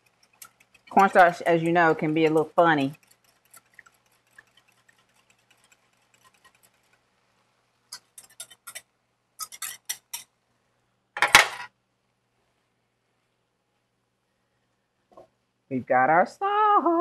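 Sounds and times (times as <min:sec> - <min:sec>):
utensil scraping a bowl: 0:00.0 - 0:07.0, 0:07.9 - 0:10.3.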